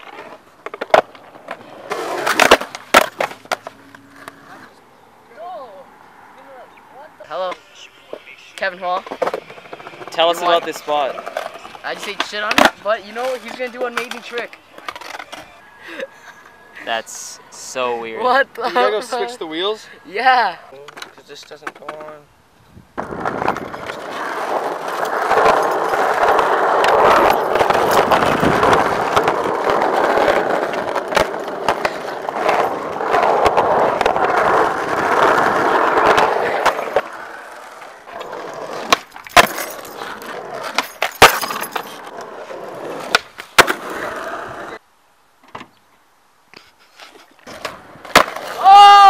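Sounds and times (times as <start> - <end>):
skateboard cracks: 0.0 - 4.7, 8.9 - 15.5, 23.0 - 44.8, 47.0 - 49.0
skateboard wheels rumbling on asphalt: 0.0 - 4.8, 6.4 - 16.7, 22.9 - 44.8, 47.1 - 49.0.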